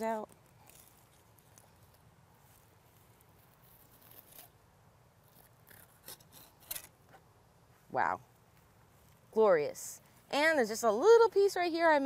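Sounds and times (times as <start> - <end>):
knife clicks and scrapes: 5.3 - 7.0.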